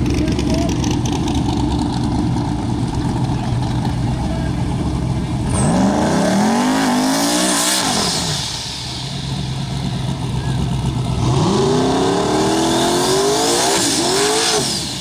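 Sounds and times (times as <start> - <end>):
car engine idling: 0.0 - 5.6, 8.1 - 12.3
car engine revving: 0.0 - 15.0.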